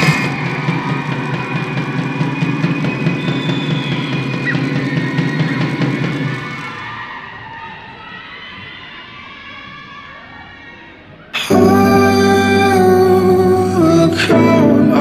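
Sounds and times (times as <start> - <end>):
dance music with drums: 0.0 - 6.8.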